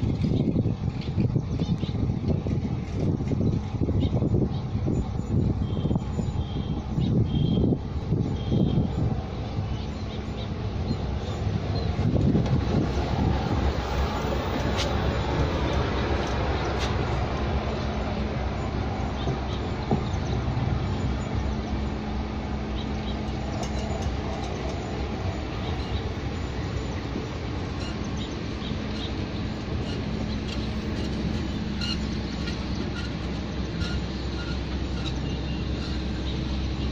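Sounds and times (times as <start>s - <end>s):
constant hum: 0.0s - 36.9s
train rolling on track: 0.0s - 36.9s
light ticks and squeaks: 14.0s - 21.8s, 22.8s - 36.7s.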